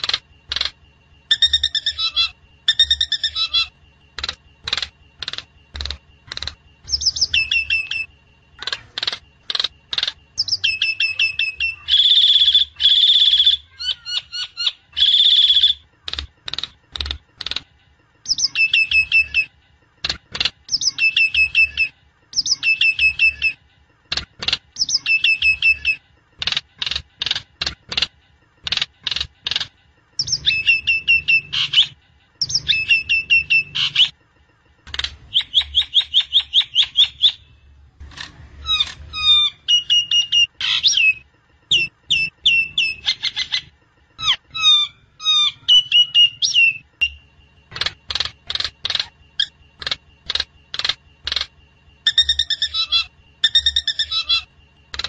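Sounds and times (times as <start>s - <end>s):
harsh raspy bird calls: 38.6s - 55.0s.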